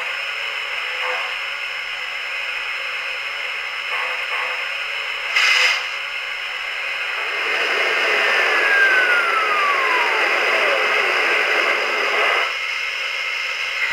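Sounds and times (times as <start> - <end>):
model locomotive steam hiss: 0.0 - 13.9
thin tone gliding down: 7.4 - 12.4.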